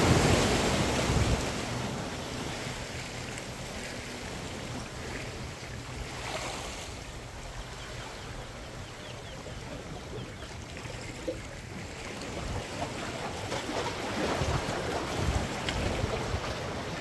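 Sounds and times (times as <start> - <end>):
waves washing against rocks: 0.0 - 4.3, 12.2 - 17.0
wind rumble on microphone: 0.0 - 10.5, 11.3 - 17.0.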